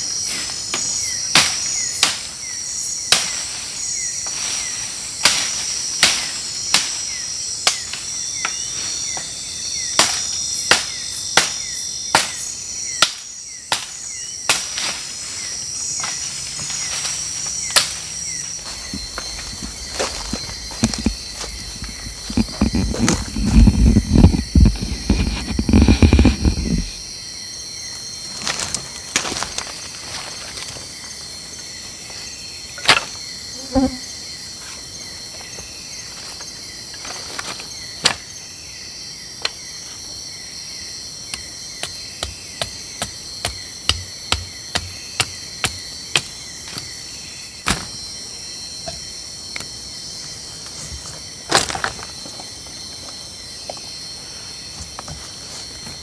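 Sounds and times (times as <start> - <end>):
crickets chirring: 0.0 - 56.0
bamboo splitting knocks and snaps: 13.0 - 15.0, 47.6 - 48.0.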